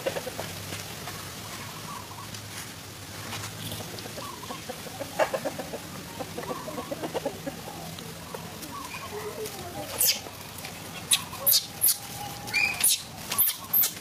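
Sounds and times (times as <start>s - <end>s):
animal calls: 4.1s - 14.0s.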